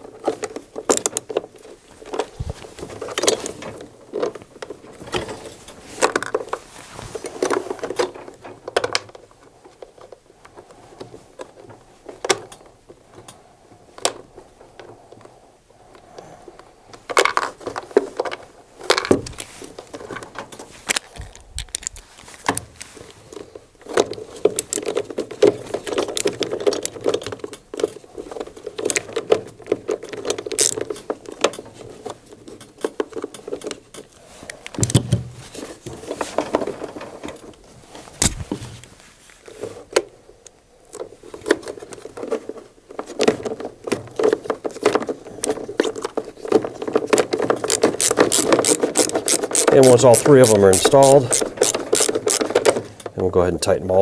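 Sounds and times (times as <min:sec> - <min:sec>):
screwdriver clicks and scrapes: 0:47.5 - 0:52.6.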